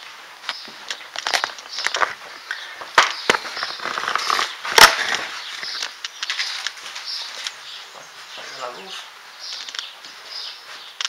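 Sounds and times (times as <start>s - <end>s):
footsteps: 0.0s - 11.0s.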